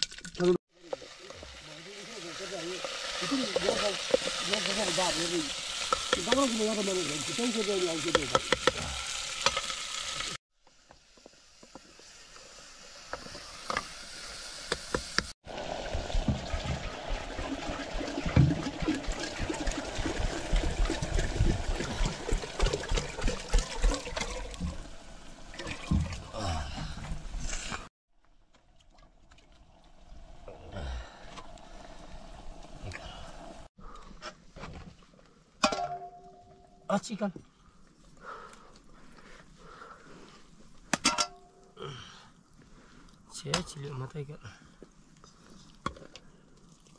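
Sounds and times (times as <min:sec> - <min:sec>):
wood fire crackling: 0:00.0 - 0:13.4
food sizzling: 0:00.0 - 0:25.6.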